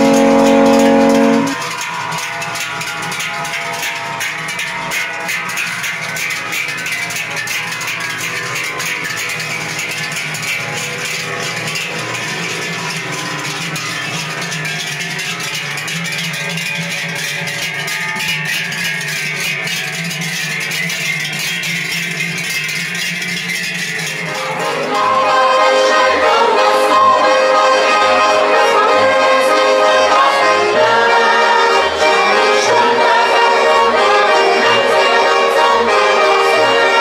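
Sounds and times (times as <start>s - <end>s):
tune with held notes: 0.0s - 5.5s, 24.2s - 37.0s
cowbells clanging: 0.0s - 37.0s.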